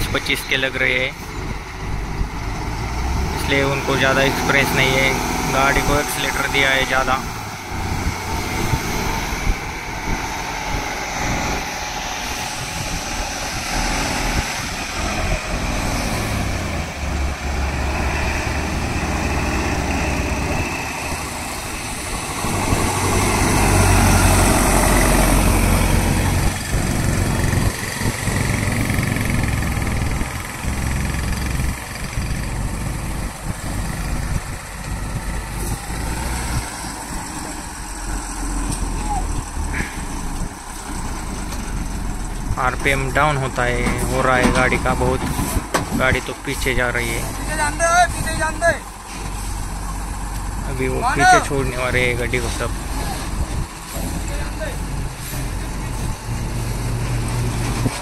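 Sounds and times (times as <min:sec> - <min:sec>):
diesel truck engine labouring: 0:00.0 - 0:58.0
traffic passing: 0:00.0 - 0:58.0
truck passing: 0:00.0 - 0:58.0.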